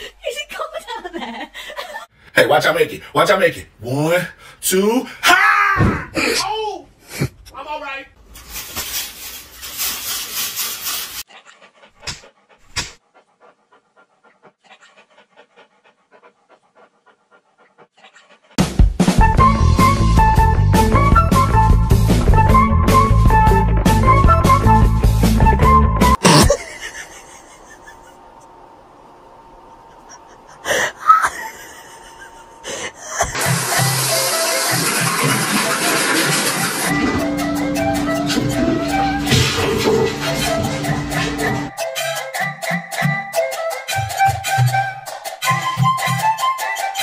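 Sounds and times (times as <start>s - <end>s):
dog panting: 11.0s - 18.6s, 29.9s - 41.7s.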